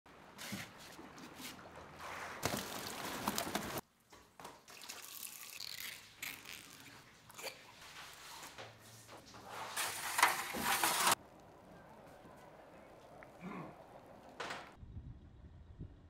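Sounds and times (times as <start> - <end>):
water dripping: 1.0 - 9.4.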